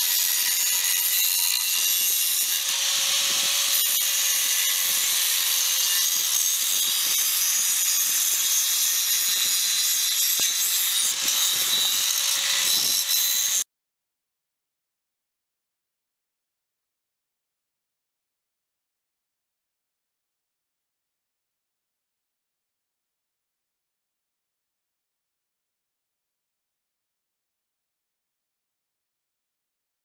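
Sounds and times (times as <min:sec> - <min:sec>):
cutting wheel grinding shell: 0:00.0 - 0:13.6
power tool motor whine: 0:00.4 - 0:13.6.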